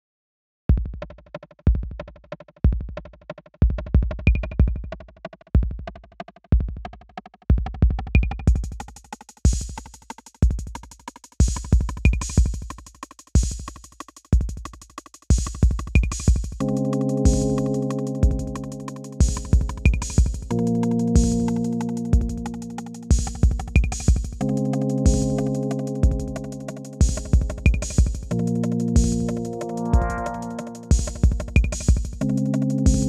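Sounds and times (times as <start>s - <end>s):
deep kick drum: 0.7s - 1.0s, 18.2s - 18.6s, 19.2s - 20.6s, 21.2s - 21.6s, 22.2s - 22.5s, 23.1s - 24.4s, 26.0s - 26.4s, 27.0s - 28.4s, 29.0s - 29.3s, 29.9s - 32.2s
fast ticking percussion: 2.9s - 33.0s
electronic beat: 11.5s - 12.6s, 15.3s - 33.0s.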